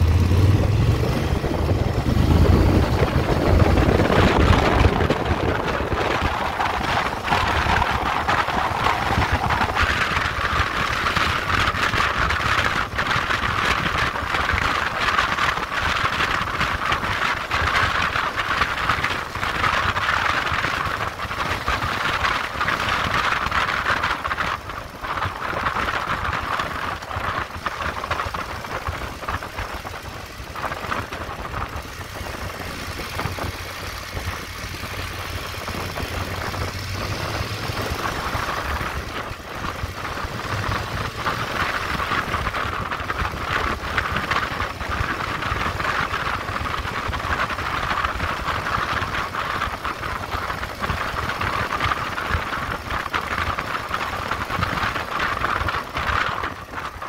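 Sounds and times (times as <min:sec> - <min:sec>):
motorcycle engine running: 0:00.0 - 0:57.0
wind rush: 0:00.0 - 0:57.0.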